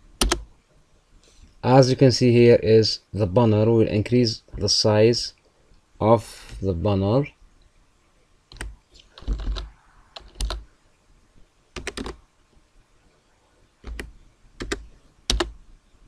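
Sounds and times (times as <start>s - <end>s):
keyboard keys clicking: 0.2s - 0.4s, 8.5s - 10.6s, 11.8s - 12.2s, 13.8s - 15.5s.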